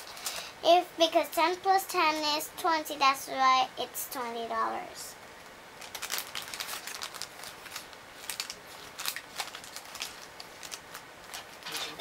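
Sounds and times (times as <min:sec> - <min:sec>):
paper notes rustling and crinkling: 0:05.8 - 0:12.0.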